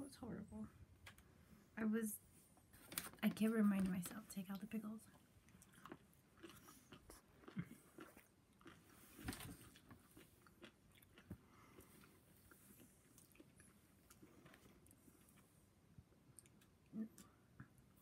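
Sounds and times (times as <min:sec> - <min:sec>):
person chewing food: 0:05.4 - 0:17.9.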